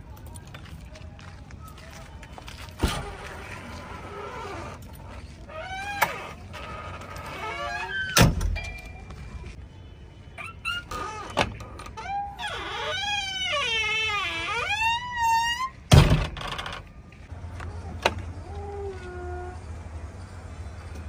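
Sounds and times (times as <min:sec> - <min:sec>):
backhoe engine rumble: 0:10.6 - 0:21.0.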